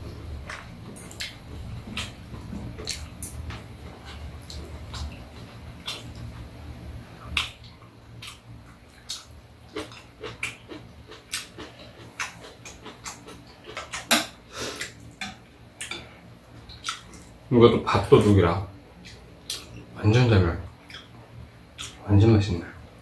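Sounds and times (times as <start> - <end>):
people chewing and lip-smacking: 0.4 - 17.4, 20.8 - 21.2, 21.8 - 22.0.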